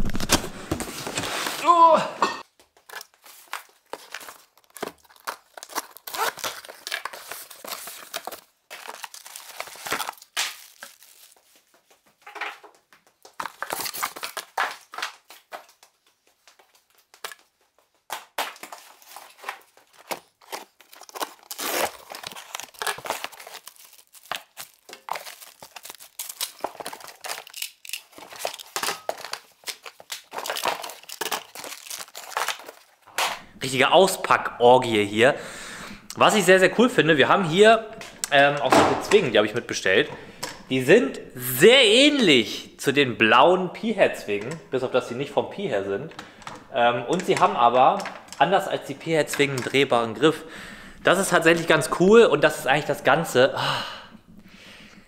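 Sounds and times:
plastic and paper crinkling: 0.0 - 1.6, 2.6 - 33.1, 46.2 - 50.4.

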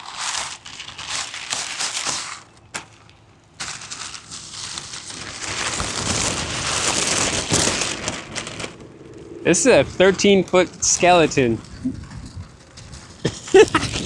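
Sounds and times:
plastic packaging crinkling: 0.0 - 9.1.

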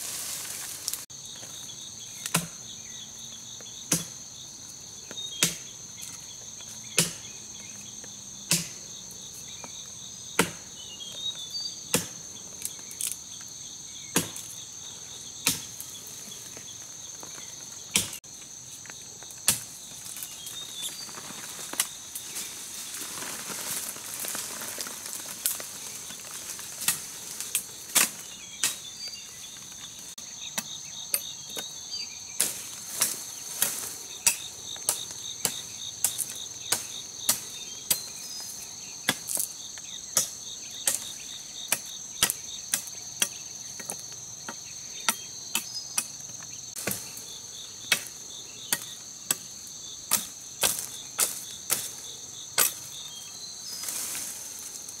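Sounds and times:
leaves rustling: 0.0 - 2.7, 12.3 - 30.4, 32.2 - 42.1, 46.4 - 55.0
insect chorus: 0.0 - 55.0
machete chopping branches: 2.2 - 2.6, 3.9 - 4.3, 5.4 - 6.1, 6.9 - 7.4, 8.5 - 8.9, 10.3 - 10.7, 11.9 - 13.2, 14.1 - 14.6, 15.4 - 16.0, 17.3 - 18.2, 19.3 - 20.4, 26.5 - 28.9, 32.4 - 38.2, 40.1 - 47.2, 47.8 - 52.0, 52.6 - 53.0.

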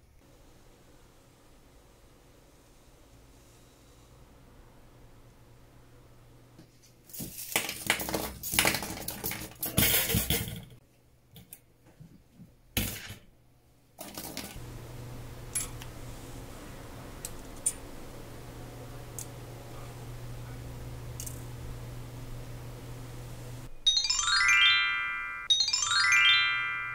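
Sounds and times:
metal mesh baskets clinking: 7.2 - 10.8
steady low hum: 14.6 - 23.8.

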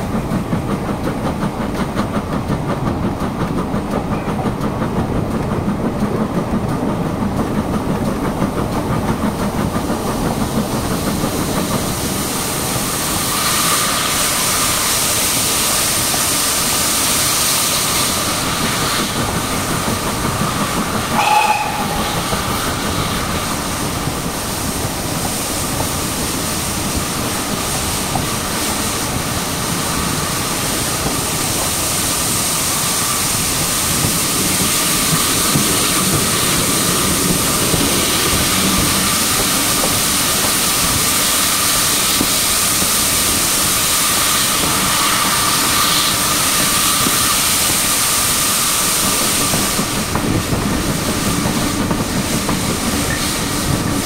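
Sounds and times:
steam train running noise: 0.0 - 54.0
locomotive whistle: 21.1 - 22.6.

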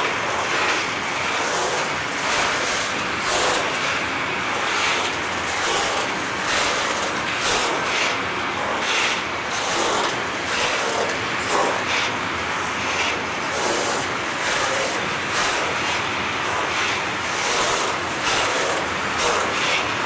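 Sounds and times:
steel wheels rumbling on rails: 0.0 - 20.0
wheels clacking over rail joints: 17.5 - 19.9.

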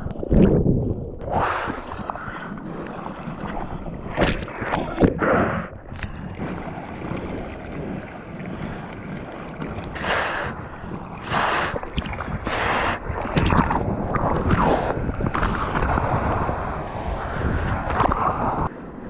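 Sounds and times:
water sloshing over surfboard: 0.0 - 18.8
paddle stroke splashes: 5.9 - 18.6.

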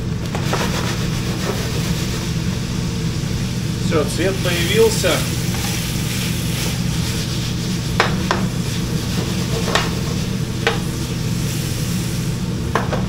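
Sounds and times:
steady low hum: 0.0 - 13.0
meat sizzling in a frying pan: 0.4 - 12.5.

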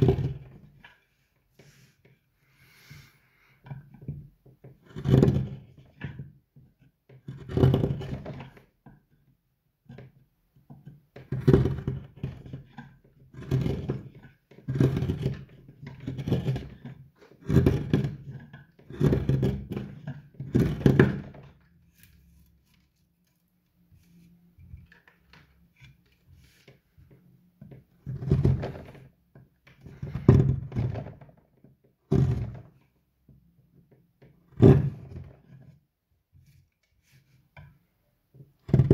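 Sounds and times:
chisel cutting wood: 4.6 - 6.2, 11.3 - 22.8.

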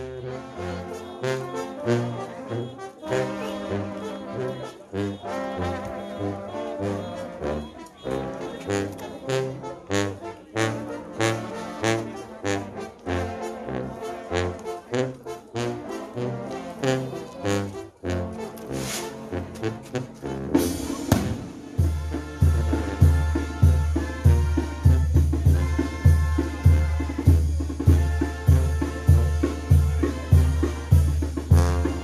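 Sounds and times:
brass band playing: 0.0 - 32.0
drum and cymbal hits: 20.6 - 32.0.

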